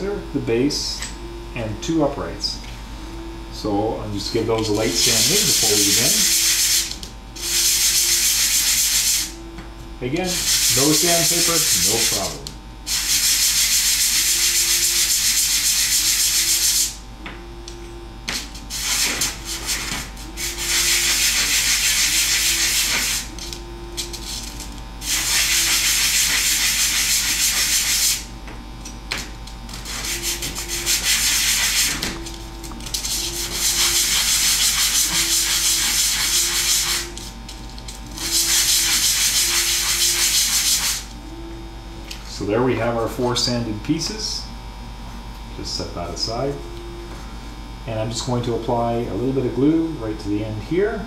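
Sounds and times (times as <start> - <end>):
hand sanding wood: 4.7 - 9.3, 10.2 - 17.0, 18.3 - 23.4, 25.0 - 28.3, 29.8 - 32.2, 33.0 - 37.2, 38.2 - 41.1.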